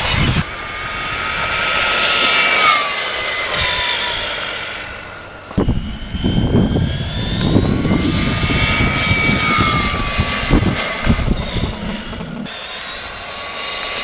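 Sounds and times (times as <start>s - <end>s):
high-pitched electric motor whine: 0.0s - 14.0s
uneven low rumble: 5.6s - 13.2s.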